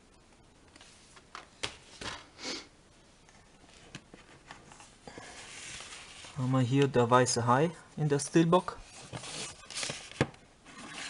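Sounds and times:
rustles and scrapes: 0:03.6 - 0:06.6, 0:08.7 - 0:11.0.

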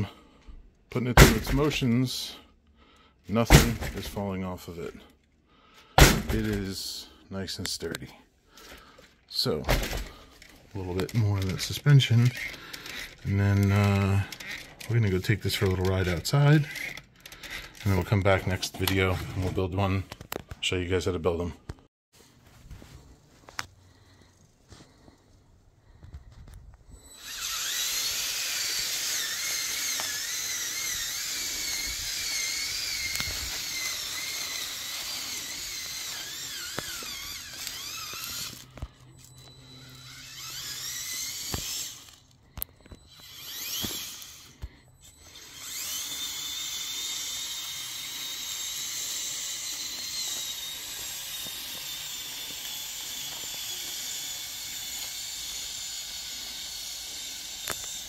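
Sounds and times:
electric motors whining: 0:08.5 - 0:19.6, 0:23.5 - 0:58.0.

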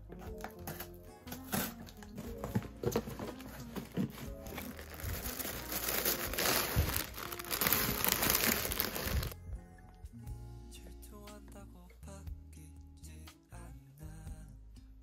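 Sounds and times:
plastic and tissue paper crinkling: 0:00.4 - 0:09.4.

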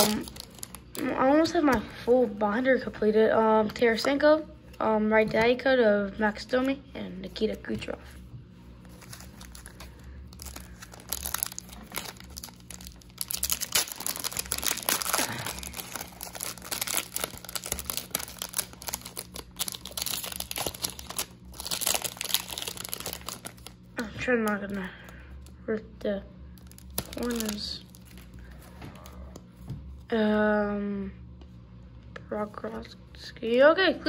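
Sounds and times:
foil wrapper crinkling: 0:00.0 - 0:01.1, 0:08.8 - 0:23.8, 0:26.6 - 0:28.7.

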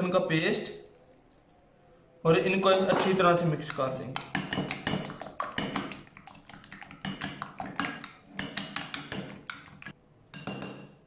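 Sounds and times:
metal spoon clinking glass bowl: 0:03.7 - 0:06.0, 0:06.9 - 0:11.0.

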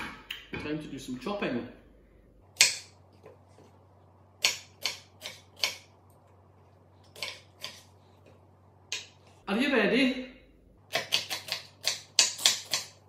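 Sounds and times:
knife chopping on wooden board: 0:10.9 - 0:13.0.

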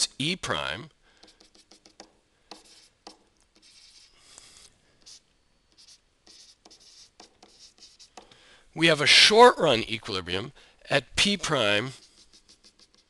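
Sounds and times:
stylus tapping on tablet screen: 0:01.2 - 0:03.2.

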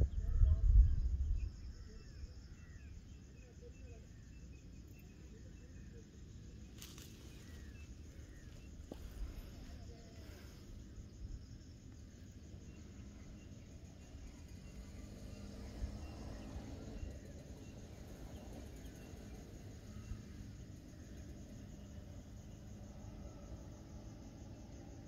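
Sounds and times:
low rumble: 0:00.0 - 0:02.3
insects trilling: 0:00.0 - 0:25.0.

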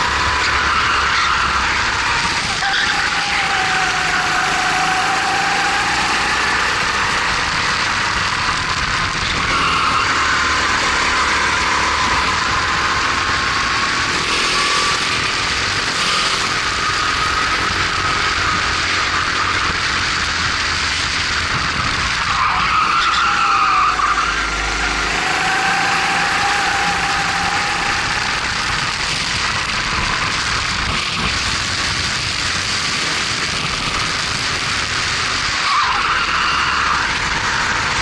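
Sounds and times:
kart engine running hard: 0:00.0 - 0:38.0
wind rush on microphone: 0:01.4 - 0:22.6, 0:25.8 - 0:36.0.

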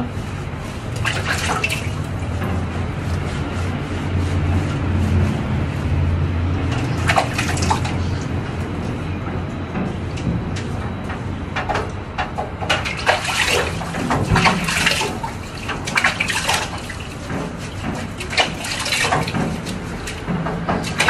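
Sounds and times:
water splashing in a sink: 0:00.0 - 0:04.8, 0:06.6 - 0:08.7, 0:12.6 - 0:21.0.

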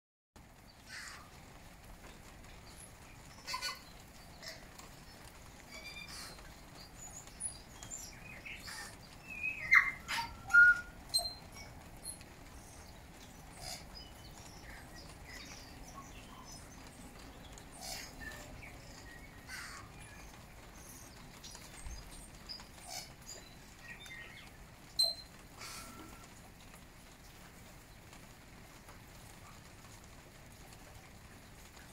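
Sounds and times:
bird calling high notes and clicks: 0:02.6 - 0:26.4.

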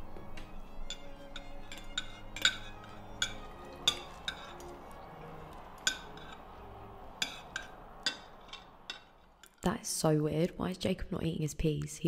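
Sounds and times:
cutlery clinking on plates: 0:00.9 - 0:09.6.

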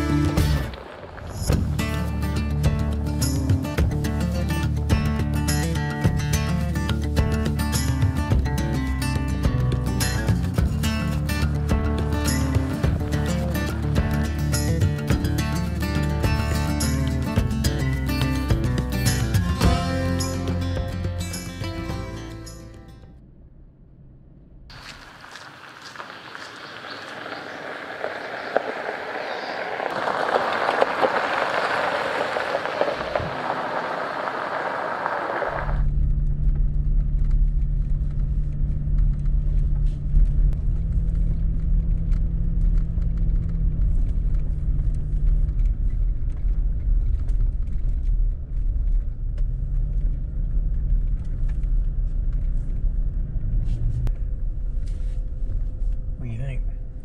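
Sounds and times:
rushing noise: 0:00.0 - 0:02.6, 0:24.7 - 0:35.9
engine and road drone: 0:00.0 - 0:57.0.

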